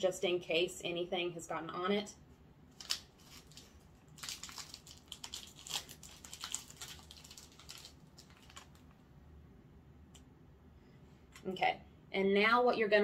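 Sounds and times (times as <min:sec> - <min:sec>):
wrapper crinkling and rustling: 0:02.7 - 0:09.0.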